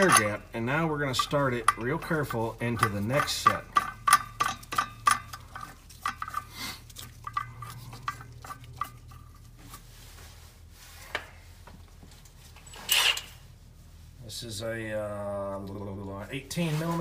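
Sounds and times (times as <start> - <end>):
bolt metallic clicks and scrapes: 0.0 - 0.4, 1.2 - 9.3, 12.2 - 13.4
low steady hum: 0.0 - 17.0.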